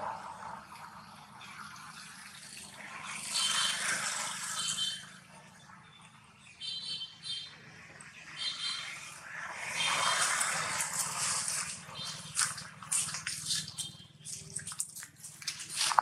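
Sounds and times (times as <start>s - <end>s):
plastic bottle crinkling: 11.0s - 16.0s.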